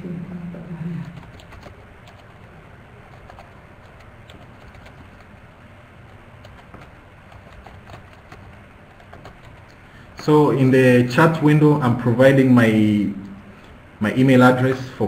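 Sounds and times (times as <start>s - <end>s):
low background hum: 0.0s - 15.0s
computer keyboard typing: 1.0s - 9.8s.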